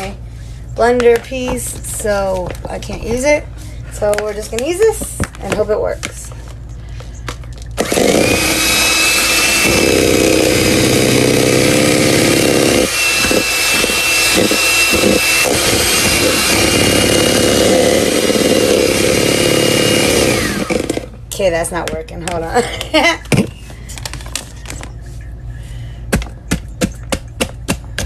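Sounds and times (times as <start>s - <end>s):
electric hand mixer whining: 7.2s - 21.2s.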